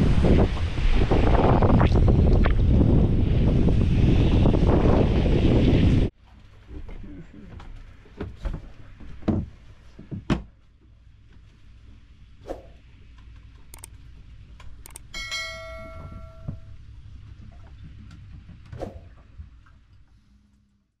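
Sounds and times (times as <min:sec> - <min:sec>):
light clicks: 0:13.2 - 0:13.9, 0:14.6 - 0:15.1
bell-like ding: 0:15.1 - 0:16.8.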